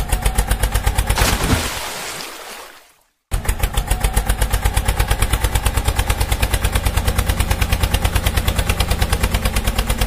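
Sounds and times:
tractor engine chugging: 0:00.0 - 0:01.2, 0:03.3 - 0:10.0.

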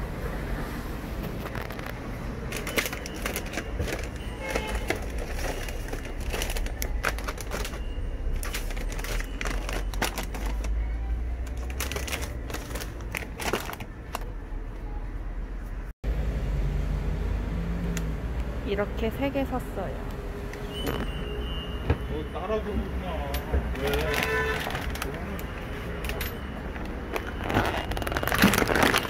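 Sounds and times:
snack bags rustling and clicking: 0:01.3 - 0:10.8, 0:11.4 - 0:14.3, 0:23.8 - 0:29.0.

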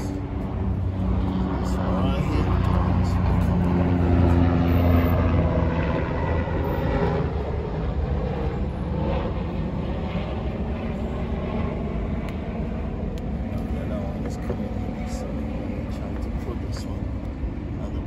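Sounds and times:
engine droning: 0:00.0 - 0:18.0.

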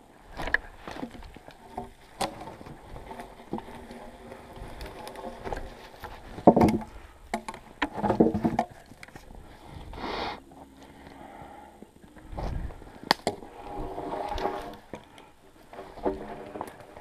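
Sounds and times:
log cracking: 0:00.0 - 0:09.7, 0:10.5 - 0:17.0
log scraping with ringing tone: 0:00.3 - 0:17.0
wooden logs knocking: 0:00.4 - 0:09.3.

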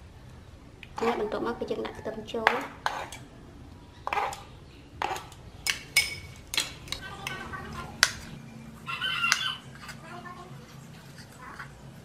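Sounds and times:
knife on wooden cutting board: 0:02.8 - 0:03.2.

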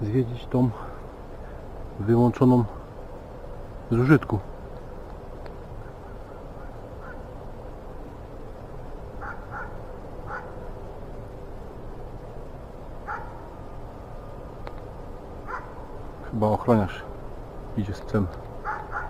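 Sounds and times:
steady low hum: 0:00.0 - 0:19.0
distant dog barking: 0:05.8 - 0:07.3, 0:09.2 - 0:10.6, 0:13.0 - 0:13.5, 0:15.4 - 0:15.9, 0:18.6 - 0:19.0.

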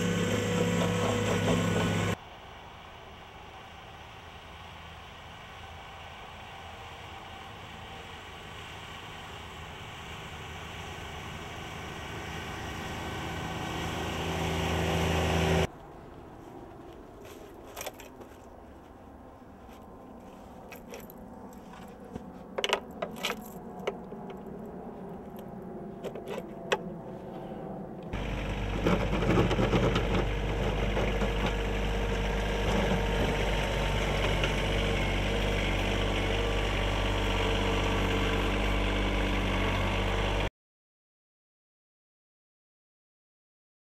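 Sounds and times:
tractor engine running: 0:00.0 - 0:02.2, 0:03.5 - 0:15.7, 0:28.1 - 0:40.5
metal clicks and clinks: 0:22.6 - 0:24.4.

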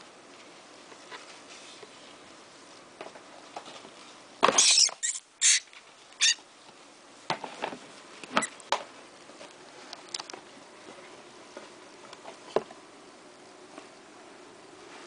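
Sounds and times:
rat squealing: 0:04.5 - 0:06.4.

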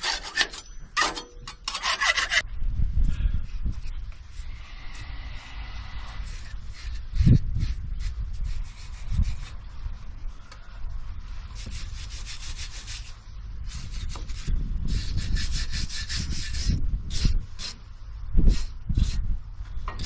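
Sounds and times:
scraping rust off steel: 0:00.0 - 0:02.4, 0:03.0 - 0:09.8.

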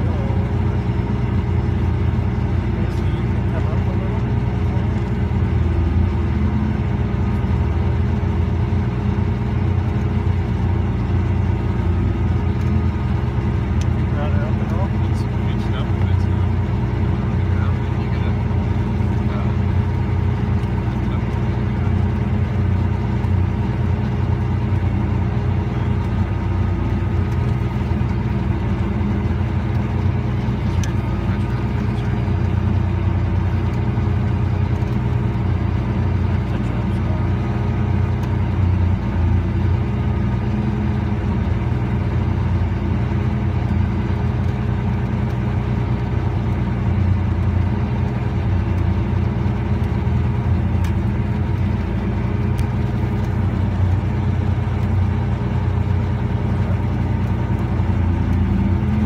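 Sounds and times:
tractor engine drone: 0:00.0 - 0:59.0.

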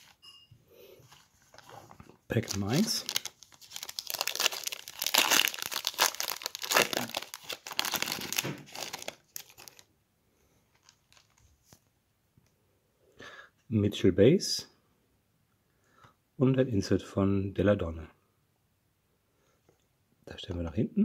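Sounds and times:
foil wrapper tearing and crinkling: 0:01.6 - 0:09.9, 0:10.8 - 0:11.4.

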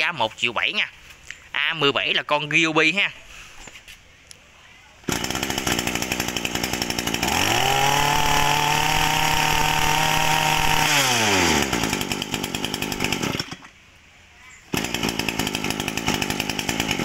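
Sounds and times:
brush cutter engine revving: 0:05.0 - 0:13.7, 0:14.7 - 0:17.0.

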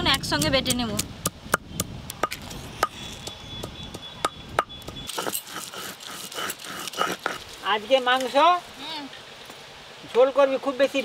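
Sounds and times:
stone knocking on stone: 0:02.2 - 0:05.4
stone scraping across slab: 0:05.0 - 0:07.7.

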